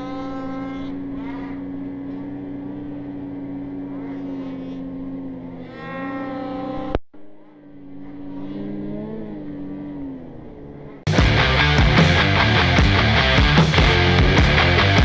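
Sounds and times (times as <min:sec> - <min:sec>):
snowmobile engine revving: 0:00.0 - 0:15.0
loud rock music: 0:11.1 - 0:15.0.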